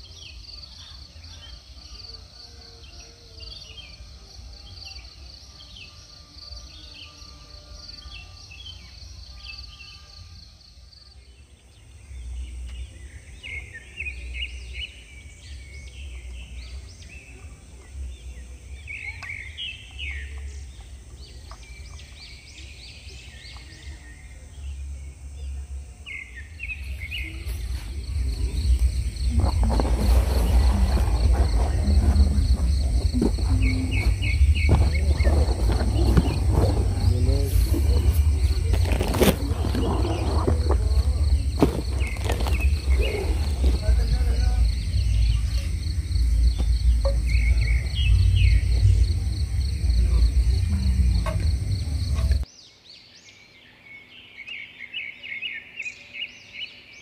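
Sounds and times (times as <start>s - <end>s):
birds chirping: 11.2s - 57.0s
pulsing insect trill: 24.1s - 52.5s
wind rumble on microphone: 26.8s - 52.4s.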